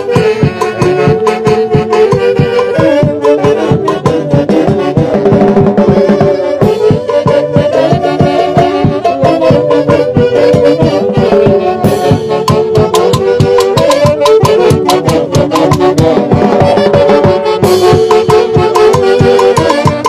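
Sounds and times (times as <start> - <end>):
festive dance music with horns: 0.0 - 20.0.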